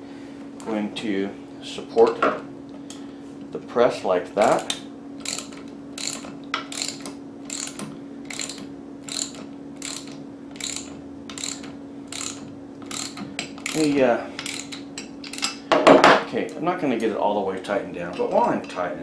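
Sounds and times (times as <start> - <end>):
ratchet wrench clicking: 5.2 - 15.6.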